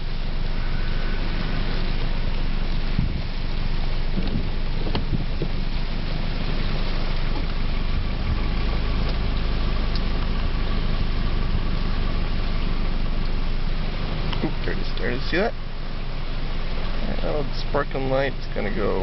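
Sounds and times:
faint steady tone: 0.0 - 4.0
wind buffeting microphone: 2.9 - 3.4, 4.2 - 5.7.

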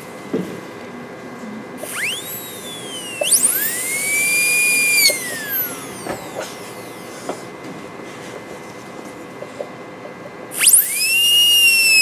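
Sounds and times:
dental drill whine: 1.8 - 7.5, 10.5 - 12.0.

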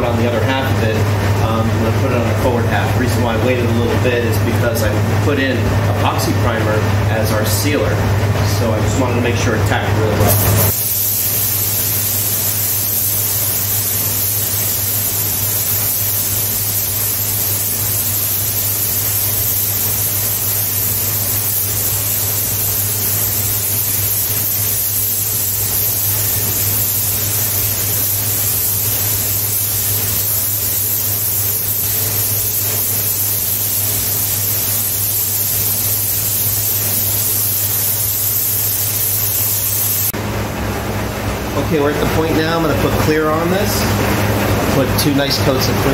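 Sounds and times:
exhaust fan hum: 0.0 - 45.9
paint spray gun hissing: 10.2 - 40.2.

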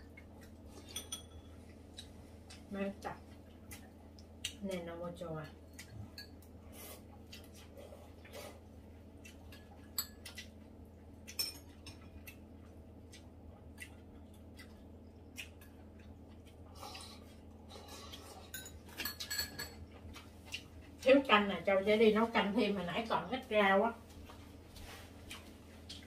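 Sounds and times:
low steady hum: 0.0 - 26.0
chopsticks clinking on bowls: 18.4 - 19.8.

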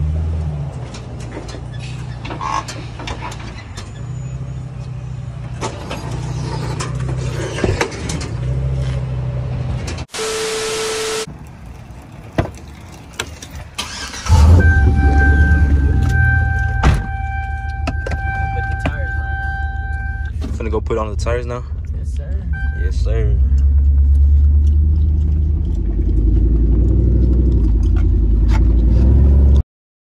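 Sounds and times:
loud engine rumble: 13.9 - 29.6.

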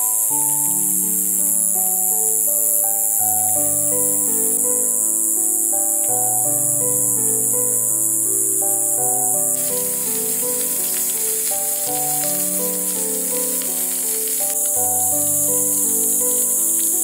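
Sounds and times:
slow melodic background music: 0.0 - 17.0
fish sizzling in a pan: 9.0 - 17.0.

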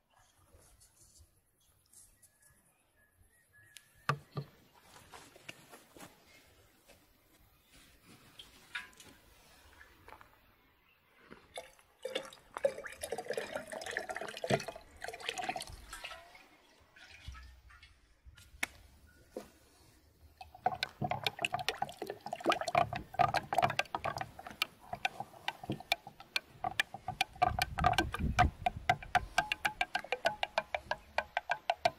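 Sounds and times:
liquid sloshing: 11.5 - 17.9, 20.4 - 31.9
liquid pouring into glass pitcher: 11.6 - 16.2, 20.4 - 31.9
spoon tapping against glass: 22.5 - 31.9.

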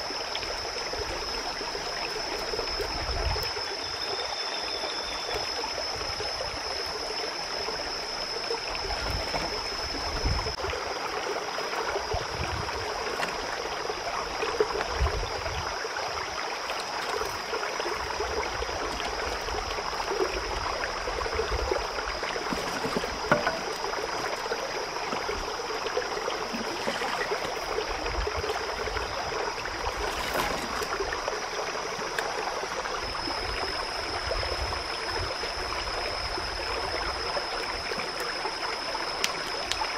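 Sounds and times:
continuous high tone: 0.0 - 39.9
creek water rushing: 10.6 - 39.9.

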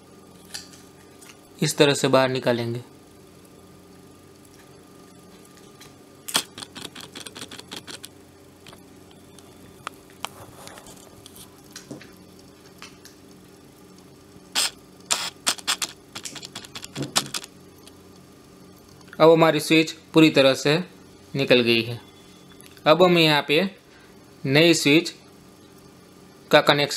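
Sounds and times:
plastic clicks and rattles: 6.3 - 8.8, 15.1 - 17.5.

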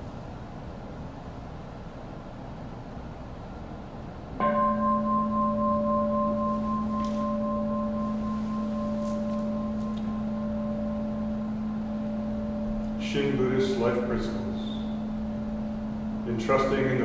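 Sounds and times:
bowl bell ringing: 4.4 - 17.0.

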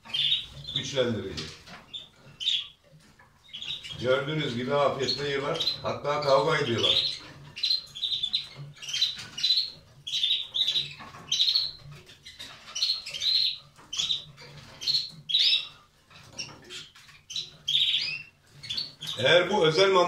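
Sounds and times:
canaries chirping: 0.0 - 20.0.

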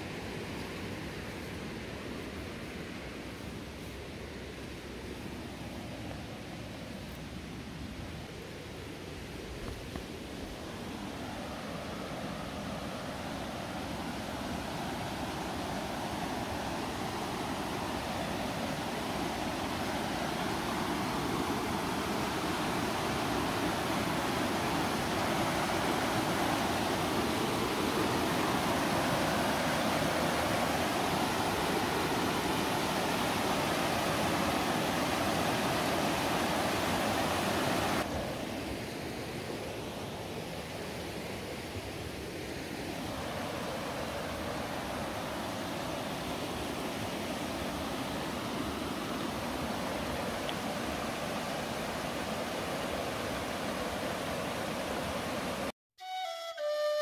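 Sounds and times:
river rapids rushing over rocks: 10.6 - 38.6, 42.8 - 55.7.

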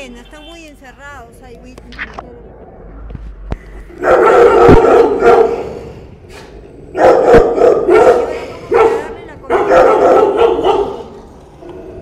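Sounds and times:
dogs barking loudly: 3.8 - 6.0, 6.8 - 12.0.

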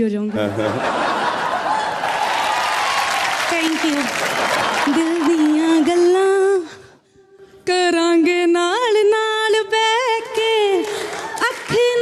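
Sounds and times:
woman singing unaccompanied: 4.9 - 6.8, 7.7 - 10.8.

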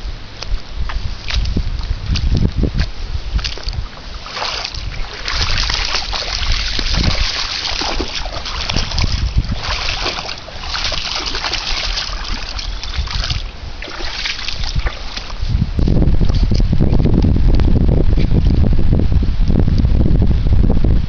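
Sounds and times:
dog splashing through water: 3.4 - 15.4.

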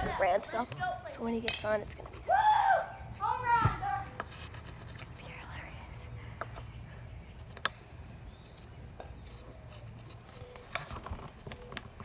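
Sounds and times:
wax rubbing and scraping: 4.1 - 5.2.

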